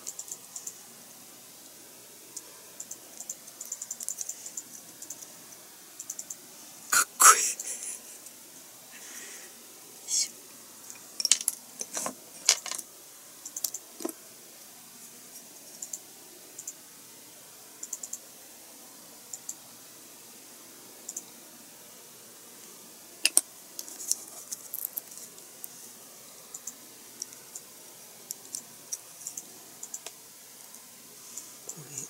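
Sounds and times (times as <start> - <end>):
plastic model parts clicking: 2.8 - 5.3.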